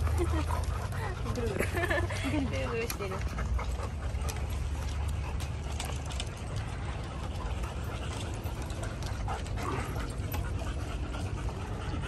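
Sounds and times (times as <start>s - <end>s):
dog claws clicking on wooden deck: 2.5s - 11.6s.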